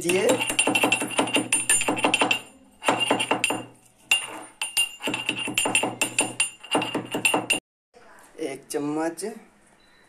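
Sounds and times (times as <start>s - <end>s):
steel pestle pounding in mortar: 0.0s - 7.6s.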